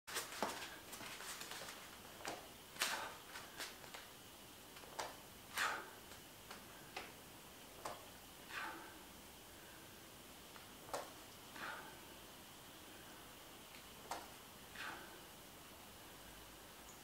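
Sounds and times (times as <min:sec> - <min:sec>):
faint clicks and taps: 0:07.8 - 0:08.1.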